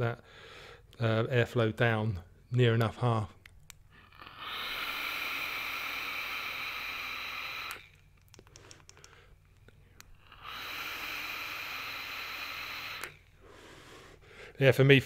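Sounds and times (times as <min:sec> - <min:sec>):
air hissing through airflow holes: 0:04.2 - 0:09.2, 0:09.9 - 0:14.1
light clicks: 0:07.7 - 0:10.1.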